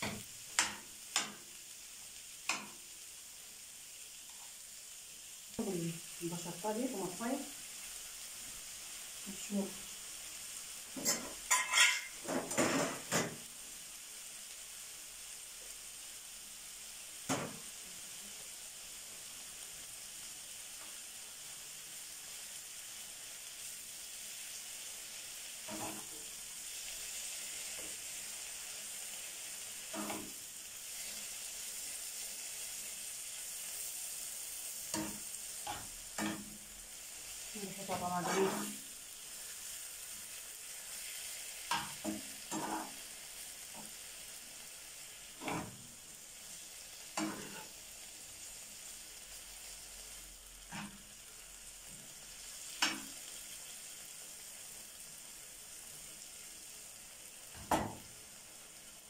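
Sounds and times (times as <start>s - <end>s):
spoon knocking and scraping pan: 0.0s - 1.4s, 2.5s - 2.8s, 11.0s - 13.5s, 17.3s - 17.7s, 25.6s - 26.2s, 29.9s - 30.4s, 34.9s - 36.6s, 41.7s - 43.0s, 45.4s - 45.9s, 47.2s - 47.8s, 50.7s - 51.0s, 52.8s - 53.2s
food sizzling in a frying pan: 0.0s - 59.0s.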